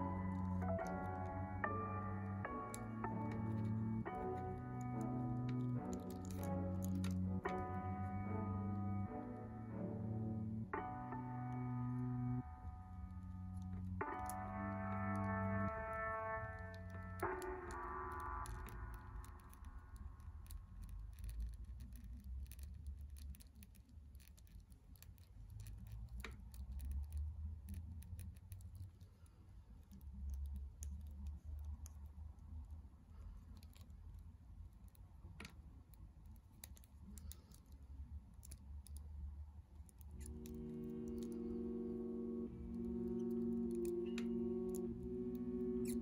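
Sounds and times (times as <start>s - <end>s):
background music: 0.0s - 20.5s, 40.2s - 46.0s.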